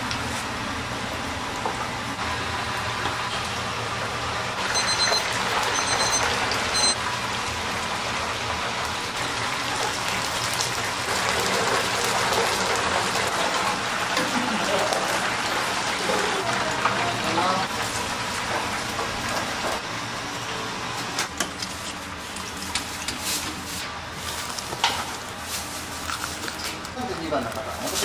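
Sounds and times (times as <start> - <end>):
food deep-frying in oil: 0.0 - 28.0
electronic beeps: 4.7 - 7.0.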